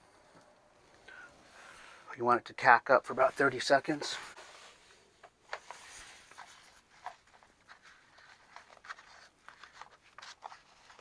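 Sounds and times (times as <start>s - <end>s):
paper rustling and scratching: 5.5s - 11.0s.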